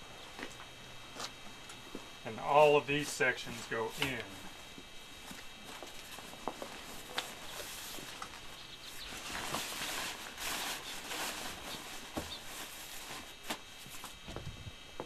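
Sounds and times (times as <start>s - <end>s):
tent fabric rustling: 5.1s - 14.2s.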